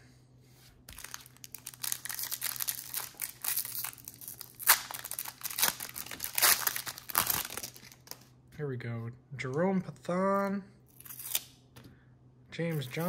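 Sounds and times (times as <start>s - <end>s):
card pack wrapper crinkling: 0.9s - 8.2s.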